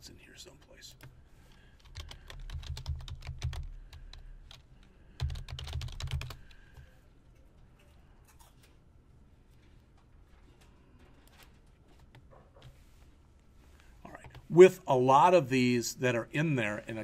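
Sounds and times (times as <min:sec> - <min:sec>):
typing on computer keyboard: 0:01.8 - 0:06.9.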